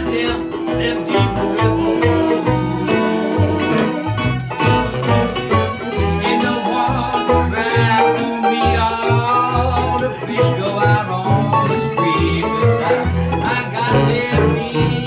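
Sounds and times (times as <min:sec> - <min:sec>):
tenor saxophone melody: 0:00.0 - 0:08.1
acoustic guitar: 0:00.0 - 0:15.0
resonator guitar: 0:00.0 - 0:15.0.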